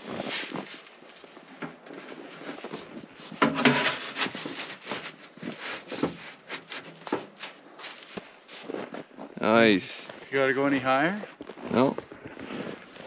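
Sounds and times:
metal pipe scraping and rubbing: 1.9s - 7.6s.

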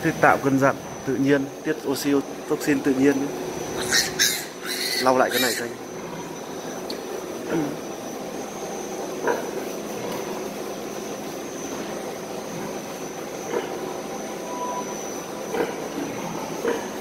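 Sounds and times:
ventilation fans droning: 0.0s - 17.0s
thin high whine: 14.2s - 15.2s.

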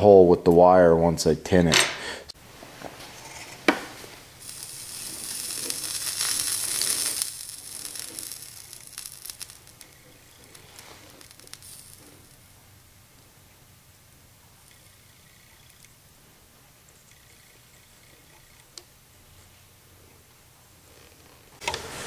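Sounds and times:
solder flux sizzling and hissing: 2.4s - 13.4s, 14.6s - 15.9s.

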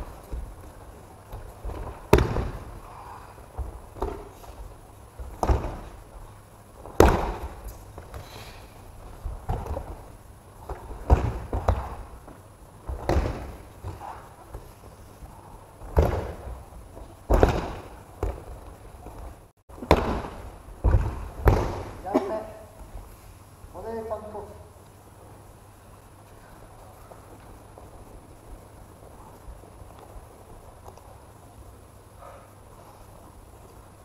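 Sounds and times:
bodies thudding on mats: 0.0s - 15.0s, 15.8s - 22.0s.

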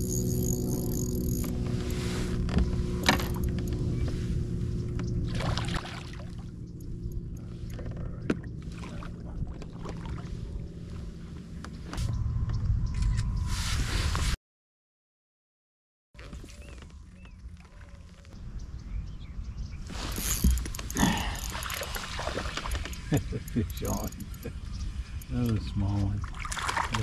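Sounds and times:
kayak hull knocks and creaks: 2.4s - 4.2s.

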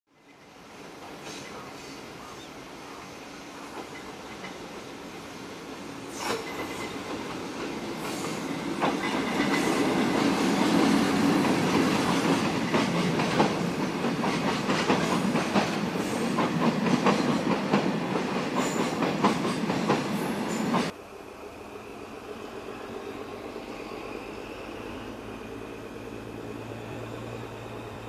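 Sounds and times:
freight train rumble: 0.3s - 28.0s
train wheels clacking over rail joints: 6.1s - 20.9s.

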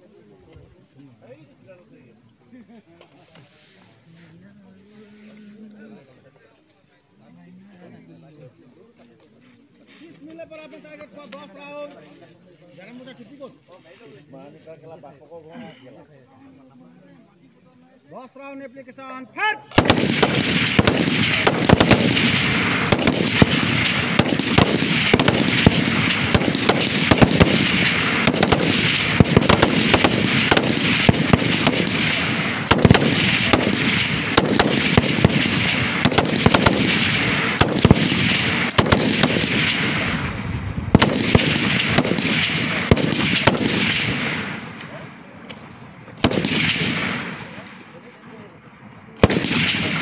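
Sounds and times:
rifle shots echoing: 19.7s - 47.7s, 49.2s - 50.0s.

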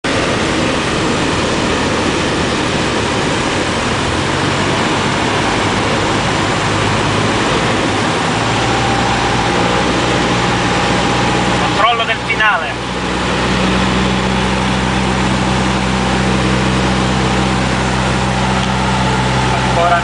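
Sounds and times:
propeller aircraft engine running: 0.0s - 20.0s
air rushing past airframe: 0.1s - 11.9s.

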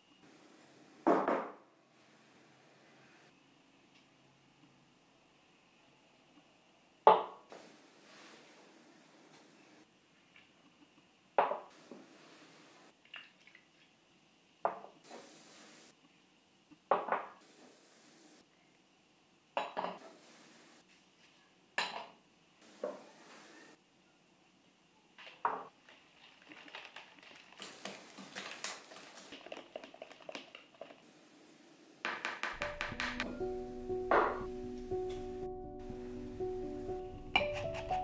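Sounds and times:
containers knocking against bowl: 32.1s - 33.3s.

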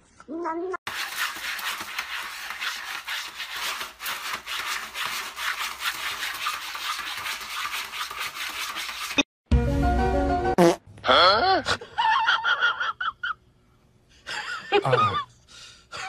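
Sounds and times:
cat scratching in litter box: 0.9s - 9.2s.

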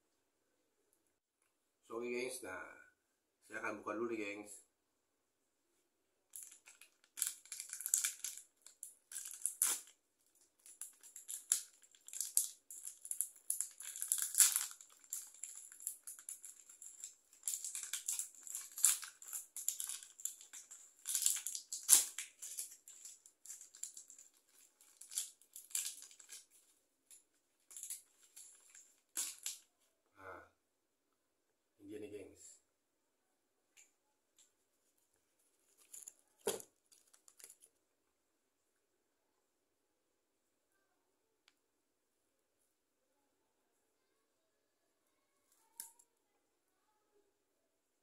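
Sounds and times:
plastic wrapper crinkling: 6.3s - 29.7s, 35.6s - 37.8s.

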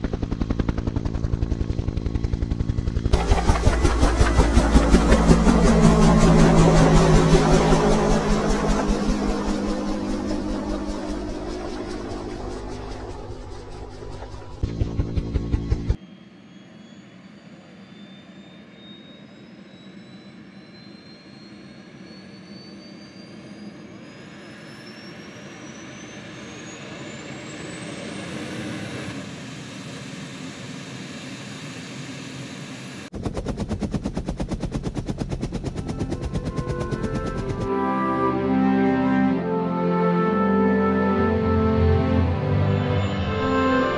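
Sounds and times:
helicopter rotor chop: 0.0s - 16.0s, 27.1s - 38.1s
aircraft engine roar: 0.0s - 43.9s.

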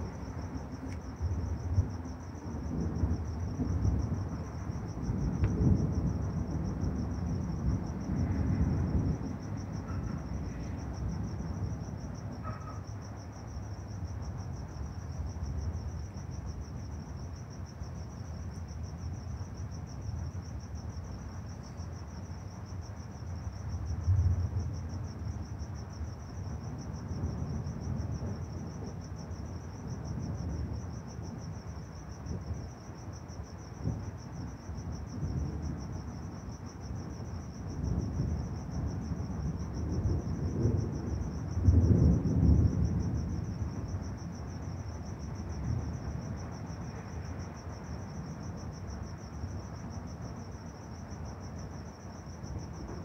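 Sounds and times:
thunder rumbling: 0.0s - 13.0s, 33.8s - 50.3s, 52.3s - 53.0s
crickets trilling: 0.0s - 53.0s.

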